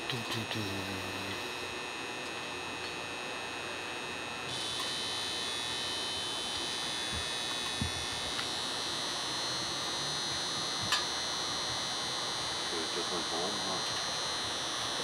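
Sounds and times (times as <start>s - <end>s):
high-pitched electrical hum: 0.0s - 15.0s.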